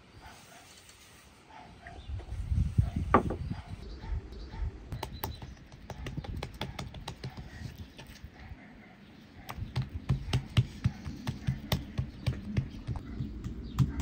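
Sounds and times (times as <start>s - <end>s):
fingers patting dough: 4.9s - 8.1s, 9.5s - 14.0s.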